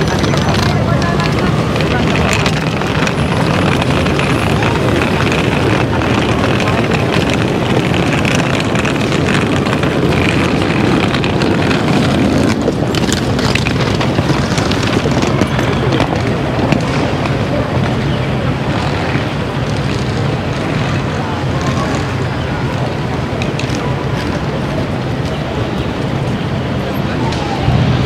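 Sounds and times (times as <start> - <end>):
murmur of passers-by: 0.0 - 28.0
traffic noise: 0.0 - 28.0.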